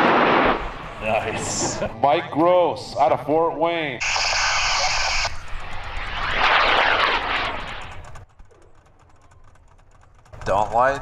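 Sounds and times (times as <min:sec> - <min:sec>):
rocket motor roaring: 0:04.0 - 0:11.0.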